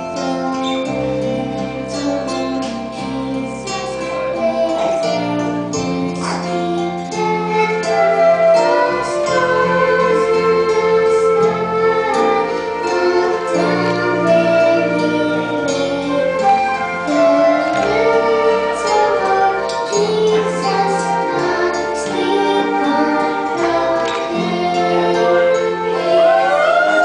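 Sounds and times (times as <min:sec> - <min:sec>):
girl singing into a microphone: 0:00.0 - 0:27.0
instrumental accompaniment with bass: 0:00.0 - 0:27.0.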